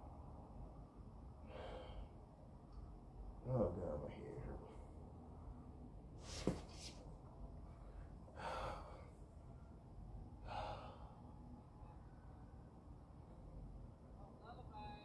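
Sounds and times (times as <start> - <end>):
man breathing heavily: 1.4 - 2.2, 7.7 - 9.4, 10.4 - 11.3.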